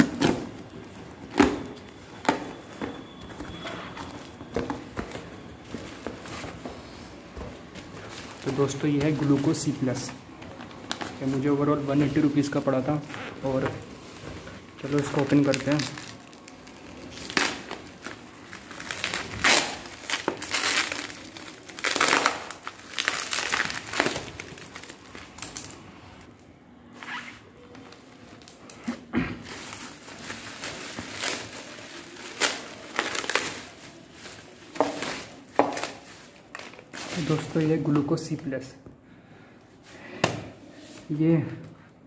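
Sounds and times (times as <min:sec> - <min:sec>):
bubble wrap crinkling: 0:00.0 - 0:26.3, 0:27.0 - 0:38.3
plastic tearing: 0:14.6 - 0:25.8, 0:27.0 - 0:37.9.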